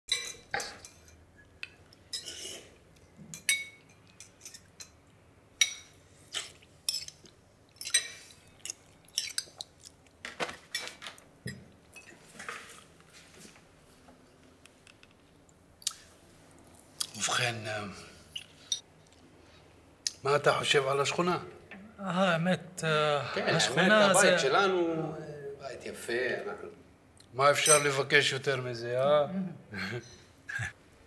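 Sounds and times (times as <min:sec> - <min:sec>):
spoons clinking on ceramic bowls: 0:00.1 - 0:01.2, 0:03.3 - 0:05.0, 0:05.6 - 0:06.0, 0:06.9 - 0:09.6, 0:27.6 - 0:28.0.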